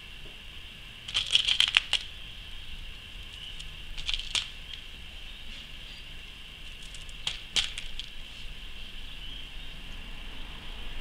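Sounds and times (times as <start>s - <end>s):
beads clicking on plastic tray: 1.1s - 2.1s, 3.3s - 4.8s.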